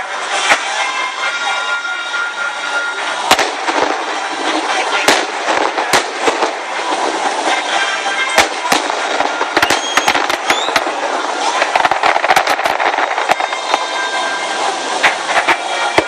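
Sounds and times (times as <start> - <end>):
firework shells bursting: 3.2 - 16.0.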